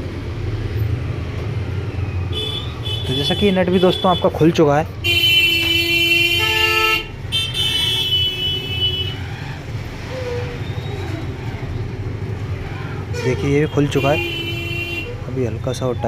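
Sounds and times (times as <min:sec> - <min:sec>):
low traffic rumble: 0:00.0 - 0:16.0
vehicle horns honking: 0:02.3 - 0:04.4, 0:05.0 - 0:09.2, 0:13.1 - 0:15.3.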